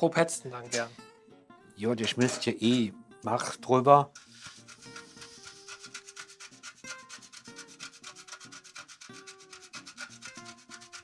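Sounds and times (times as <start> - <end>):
cheese grating on metal grater: 4.2 - 11.0.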